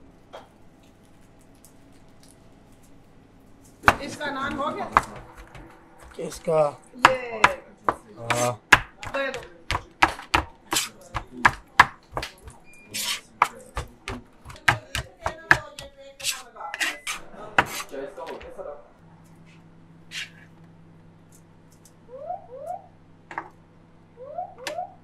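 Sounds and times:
metal kitchen utensils clattering: 14.6s - 17.9s.

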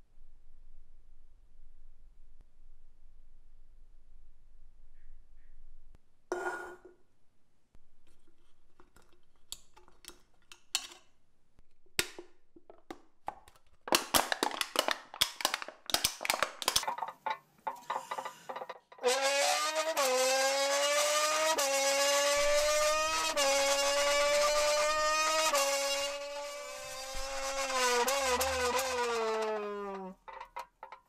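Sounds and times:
clicks from handling can: 12.0s - 17.0s
drink can crinkling: 12.0s - 19.2s
brass-like tone: 19.0s - 30.2s.

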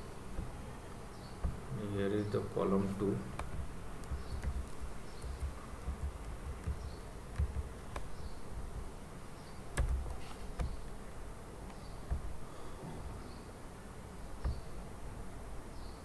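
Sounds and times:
low buzzing hum: 0.0s - 16.0s
keyboard and mouse clicks: 2.8s - 8.4s, 9.7s - 11.0s, 11.7s - 12.5s.

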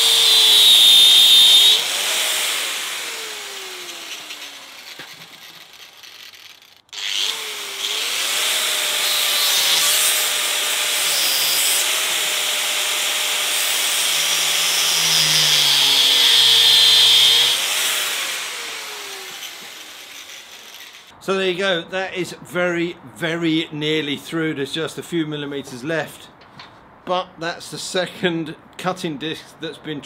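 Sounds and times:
angle grinder cutting metal: 0.0s - 21.1s.

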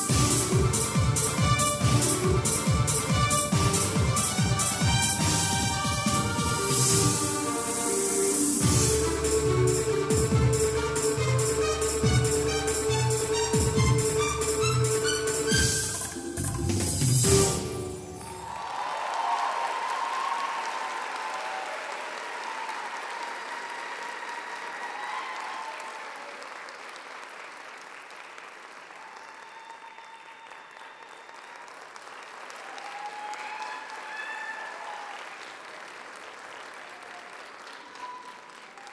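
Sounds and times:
people cheering: 18.0s - 27.6s, 28.6s - 38.9s
audience applauding: 18.1s - 38.9s.

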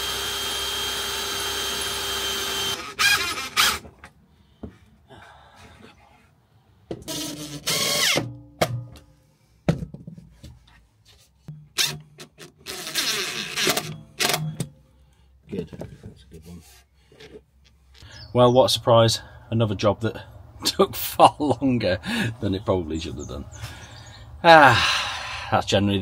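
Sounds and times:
power drill driving screws: 0.0s - 3.9s, 7.1s - 8.3s, 11.8s - 14.4s.

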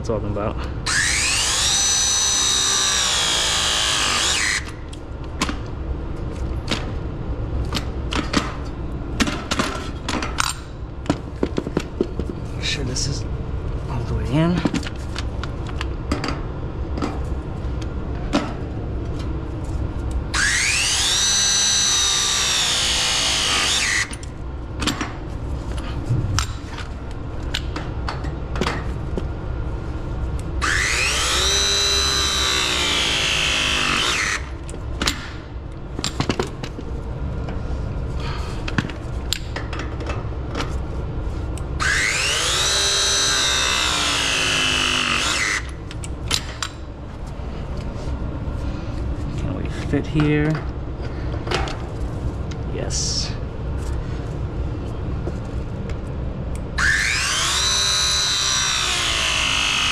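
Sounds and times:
press tool motor whine: 0.9s - 4.8s, 20.4s - 24.2s, 30.6s - 34.6s, 41.8s - 45.8s, 56.8s - 59.9s.

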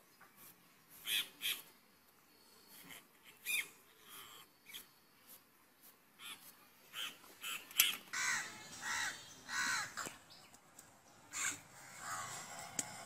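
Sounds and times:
crows cawing: 8.1s - 10.1s, 11.3s - 12.6s.

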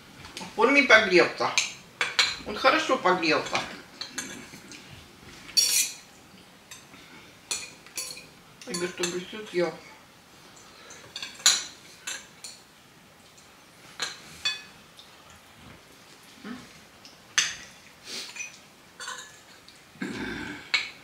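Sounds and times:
cutlery clinking on plates: 3.4s - 4.8s, 5.5s - 6.1s, 7.5s - 9.3s, 10.8s - 12.6s, 14.0s - 14.8s, 17.4s - 19.8s.

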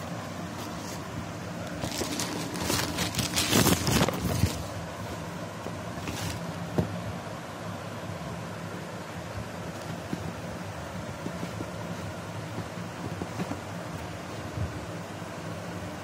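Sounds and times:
plastic packaging crinkling: 1.6s - 5.3s.

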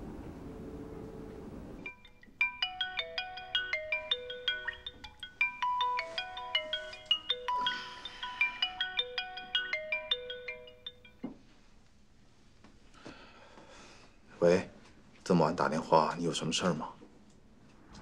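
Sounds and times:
low steady hum: 0.0s - 2.1s
phone ringtone melody: 1.8s - 11.3s.

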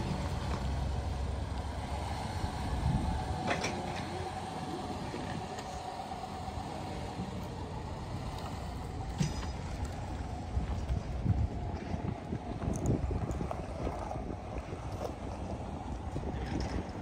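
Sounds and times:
car engine hum: 0.0s - 17.0s.

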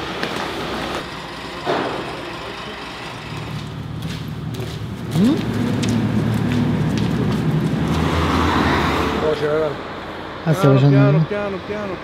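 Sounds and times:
vehicle engine running: 0.0s - 8.0s.

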